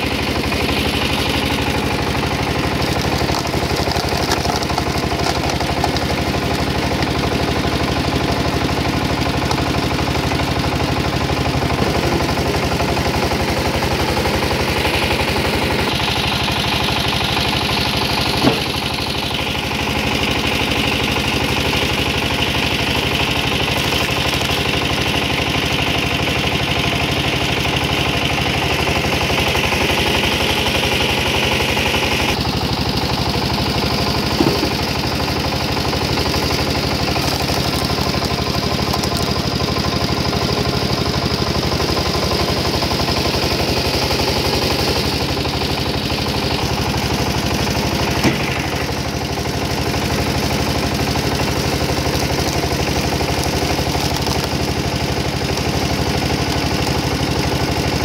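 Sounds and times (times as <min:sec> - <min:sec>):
log splitter engine running: 0:00.0 - 0:58.0
log cracking: 0:01.4 - 0:07.6, 0:33.8 - 0:39.6, 0:50.4 - 0:57.3.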